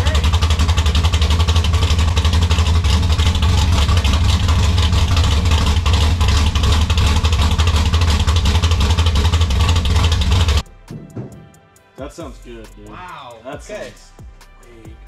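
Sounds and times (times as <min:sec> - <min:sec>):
loud rattly engine exhaust: 0:00.0 - 0:10.6.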